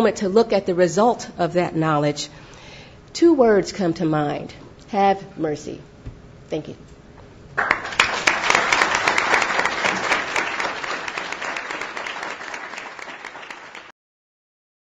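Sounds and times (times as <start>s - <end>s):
audience applauding: 7.6s - 13.9s.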